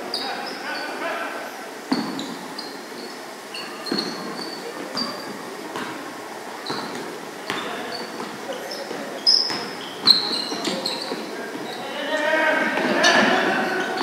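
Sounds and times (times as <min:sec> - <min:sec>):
sneaker squeaks: 0:00.0 - 0:01.0, 0:01.8 - 0:14.0
basketball bouncing on wooden floor: 0:06.7 - 0:08.4.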